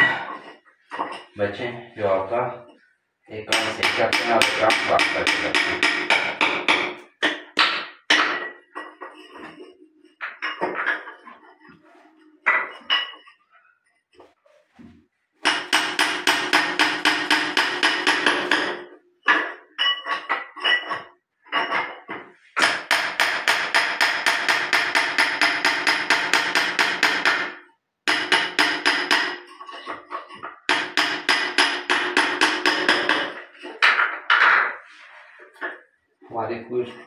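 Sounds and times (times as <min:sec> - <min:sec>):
hammer striking chisel: 0:03.5 - 0:09.5, 0:15.4 - 0:21.0, 0:22.6 - 0:34.8.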